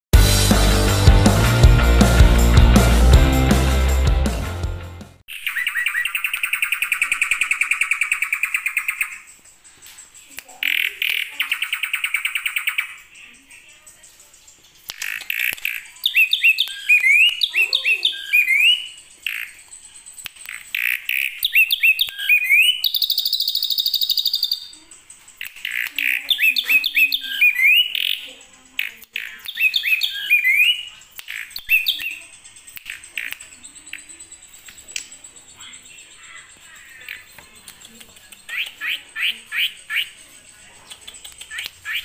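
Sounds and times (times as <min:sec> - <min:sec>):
bird singing sharp rising whistles: 0:05.3 - 0:09.2.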